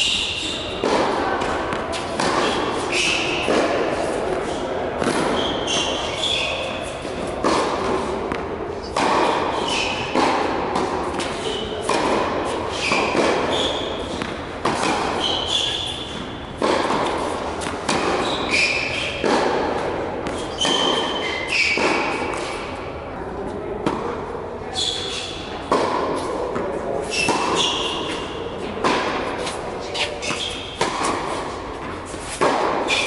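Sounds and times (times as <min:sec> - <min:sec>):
tennis shoes squeaking: 0:00.0 - 0:08.1, 0:08.8 - 0:22.7, 0:24.7 - 0:26.3, 0:27.0 - 0:33.0
tennis ball hit by racket: 0:00.5 - 0:22.8, 0:23.8 - 0:24.2, 0:25.2 - 0:33.0
tennis ball bouncing on court: 0:00.8 - 0:04.1, 0:05.0 - 0:06.5, 0:07.1 - 0:22.7, 0:23.8 - 0:24.2, 0:25.6 - 0:33.0.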